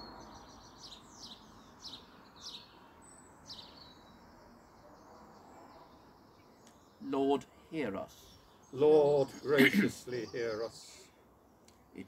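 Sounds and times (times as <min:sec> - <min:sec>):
small bird chirping: 0:00.0 - 0:07.3
faint outdoor background noise: 0:00.0 - 0:12.0.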